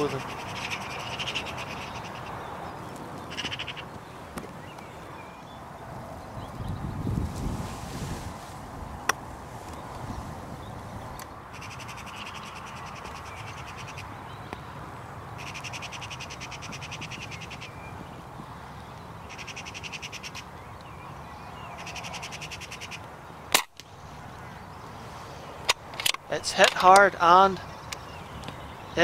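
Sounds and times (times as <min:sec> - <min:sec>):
magpie chattering: 0:00.0 - 0:02.3, 0:03.3 - 0:03.8, 0:15.4 - 0:17.8.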